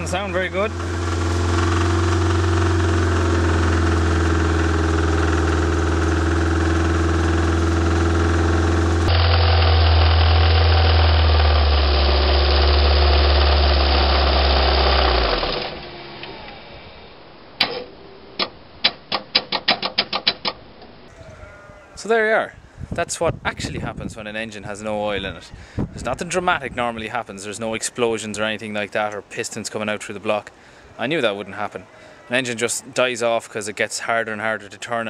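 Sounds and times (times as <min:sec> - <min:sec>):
petrol engine running: 0:00.0 - 0:17.3.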